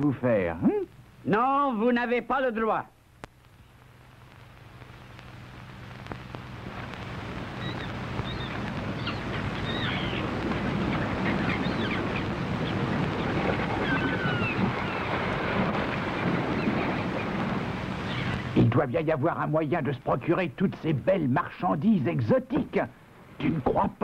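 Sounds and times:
wind: 0.0s - 24.0s
sea surf: 6.7s - 18.6s
bird cries: 7.5s - 18.6s.

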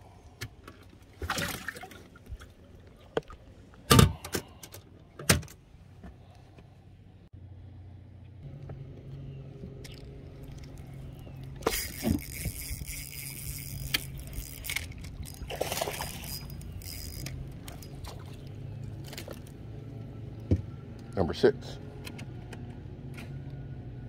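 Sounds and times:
water splashing and sloshing: 0.0s - 6.5s, 9.6s - 20.7s
steady low hum: 1.8s - 24.0s.

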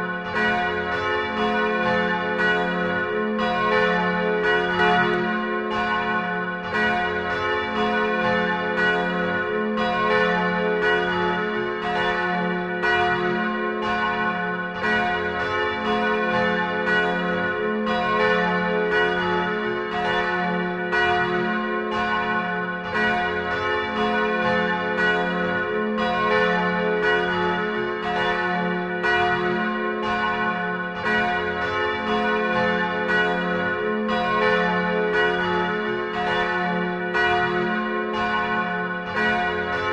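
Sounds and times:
church bells pealing: 0.0s - 39.9s.

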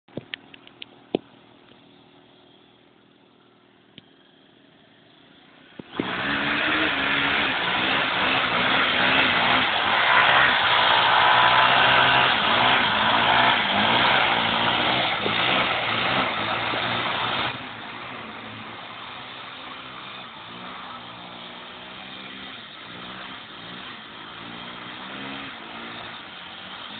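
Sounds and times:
motorcycle engine revving: 5.8s - 26.9s.

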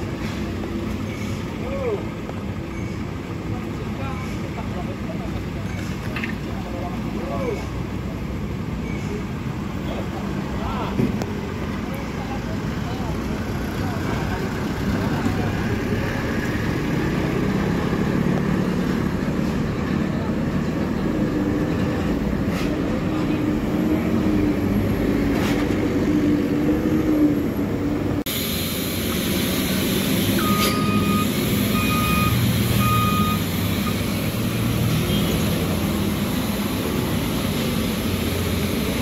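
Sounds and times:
road traffic passing: 0.0s - 39.0s
short high beeps: 30.4s - 34.1s.

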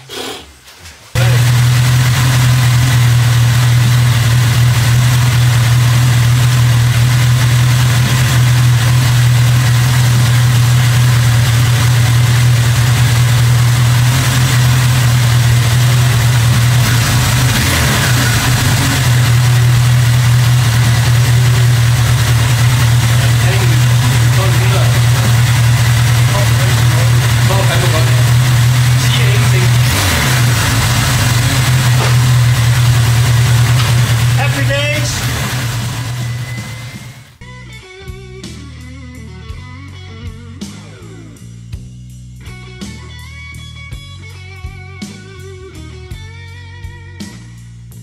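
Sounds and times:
motorcycle engine idling: 1.2s - 37.4s.

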